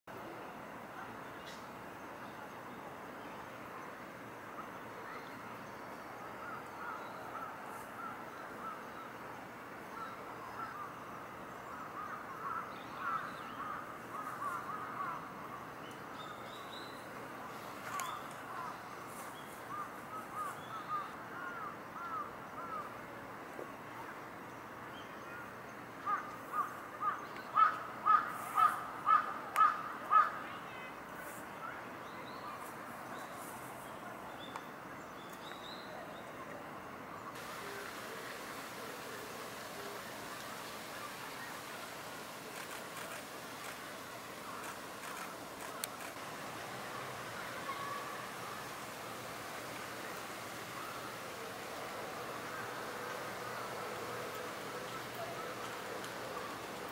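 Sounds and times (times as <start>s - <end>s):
wild birds calling: 11.6s - 15.6s, 26.1s - 30.4s, 37.4s - 56.9s.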